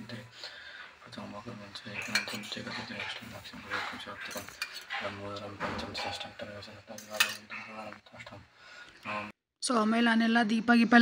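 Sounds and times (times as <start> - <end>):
metal cup clinking on plate: 2.0 - 2.6, 6.9 - 7.5.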